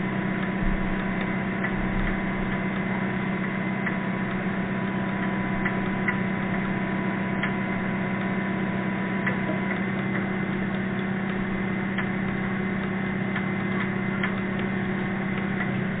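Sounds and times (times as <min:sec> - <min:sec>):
dredging boat low hum underwater: 0:00.0 - 0:16.0
sharp ticks: 0:00.4 - 0:16.0.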